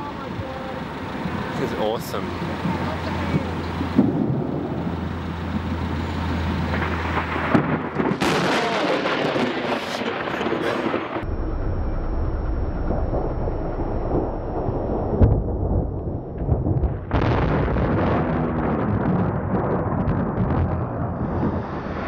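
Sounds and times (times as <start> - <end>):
truck passing: 0.0 - 8.3, 10.1 - 16.3, 21.0 - 22.0
road traffic passing: 0.0 - 8.5
low rumbling: 0.0 - 22.0.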